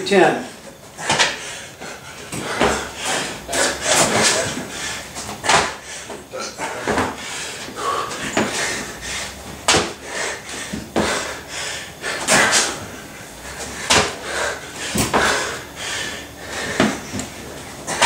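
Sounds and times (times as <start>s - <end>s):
man breathing heavily: 0.4s - 18.0s
body slapping and thudding on floor: 5.2s - 5.8s, 9.6s - 10.0s, 13.8s - 14.2s.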